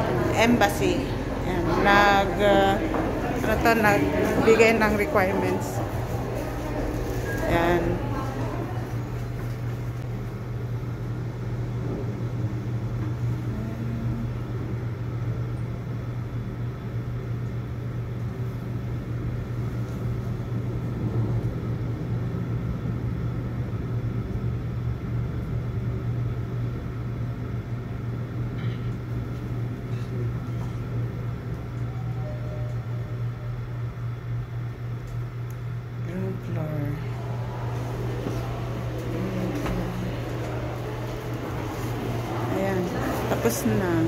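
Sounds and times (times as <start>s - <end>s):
elevator hum and rumble: 0.0s - 44.0s.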